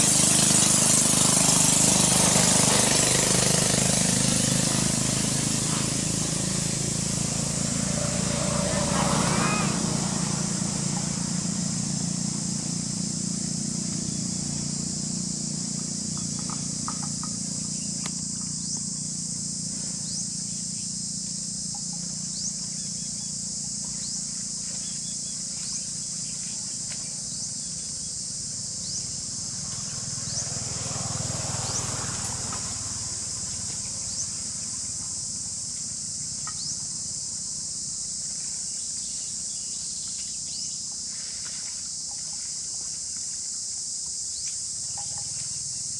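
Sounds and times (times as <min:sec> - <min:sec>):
insects droning: 0:00.0 - 0:45.9
short rising chirp: 0:08.0 - 0:10.2.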